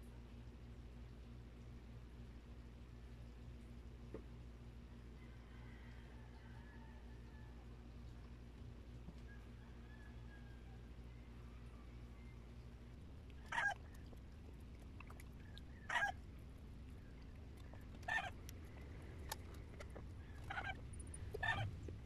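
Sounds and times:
honking bird calls: 0:15.7 - 0:16.2, 0:18.1 - 0:18.4, 0:20.2 - 0:21.7.

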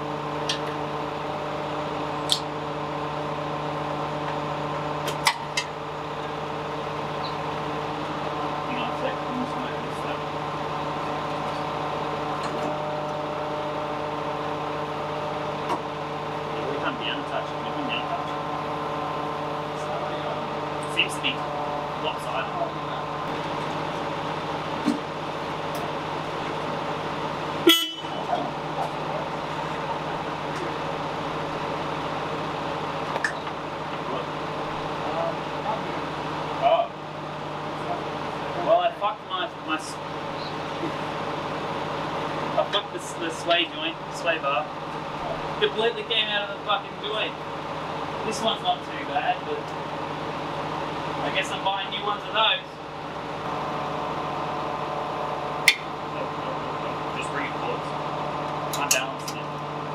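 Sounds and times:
steady mechanical hum: 0:00.0 - 0:59.9.

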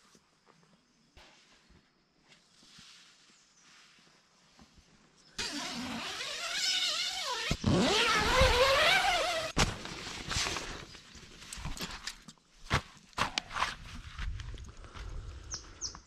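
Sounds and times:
tent zipper unzipping: 0:05.4 - 0:10.5.

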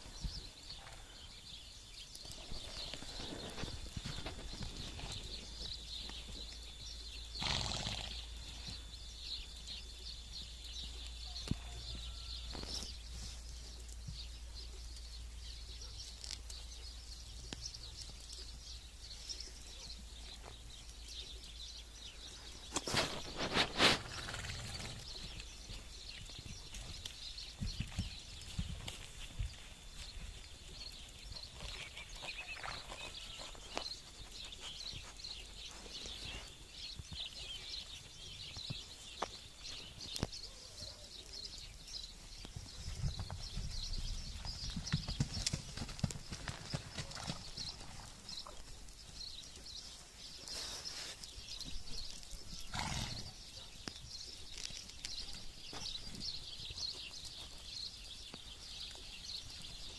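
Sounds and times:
small birds chirping: 0:00.0 - 0:59.9
hooves thudding in snow: 0:02.3 - 0:06.5, 0:22.6 - 0:40.2, 0:42.3 - 0:49.4.

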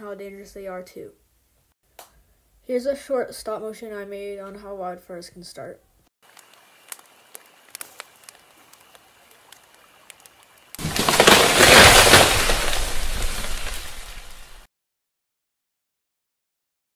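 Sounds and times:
campfire crackling and popping: 0:06.2 - 0:14.7.

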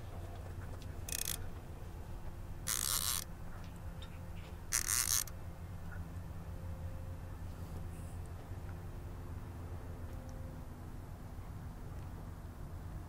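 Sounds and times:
steady low hum: 0:00.0 - 0:13.0
fishing reel zipping: 0:01.1 - 0:01.4, 0:02.6 - 0:03.3, 0:04.7 - 0:05.3.

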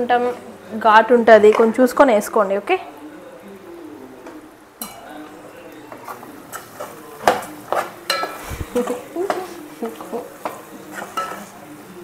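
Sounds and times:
spoon scraping metal pot: 0:05.9 - 0:11.6.

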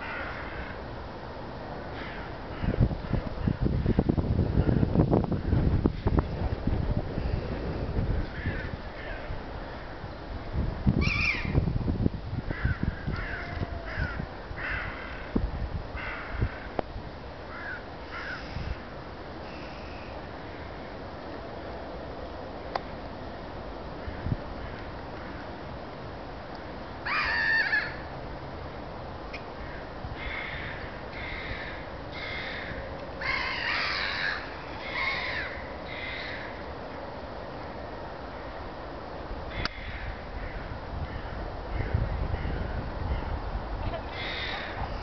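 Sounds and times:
gulls calling: 0:11.0 - 0:11.6
gulls giving harsh calls: 0:11.0 - 0:11.6, 0:27.1 - 0:28.1, 0:29.6 - 0:36.6, 0:44.0 - 0:45.0.

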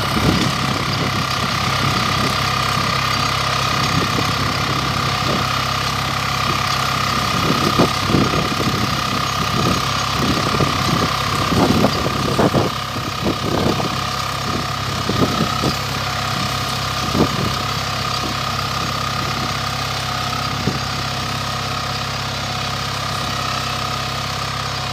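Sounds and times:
tractor engine running: 0:00.0 - 0:24.9.

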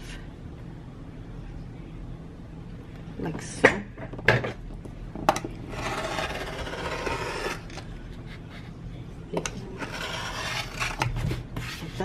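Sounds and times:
rotary cutter cutting canvas: 0:05.7 - 0:07.7, 0:09.8 - 0:11.1.

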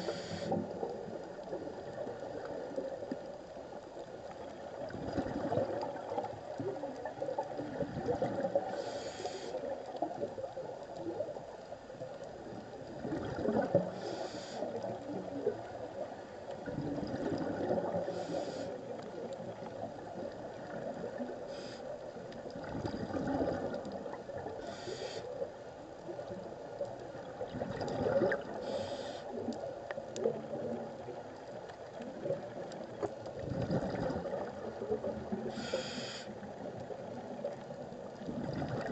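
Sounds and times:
regulator inhalation hiss: 0:00.0 - 0:00.6, 0:08.7 - 0:09.6, 0:14.0 - 0:14.7, 0:18.1 - 0:18.8, 0:21.5 - 0:21.9, 0:24.6 - 0:25.4, 0:28.6 - 0:29.3, 0:35.5 - 0:36.3
gurgling exhaust bubbles: 0:22.6 - 0:23.8, 0:27.5 - 0:28.5, 0:33.4 - 0:35.3.

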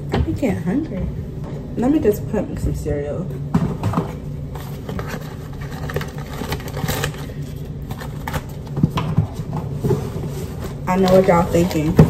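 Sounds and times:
steady low hum: 0:00.0 - 0:12.0
plastic bags rustling: 0:04.0 - 0:12.0.

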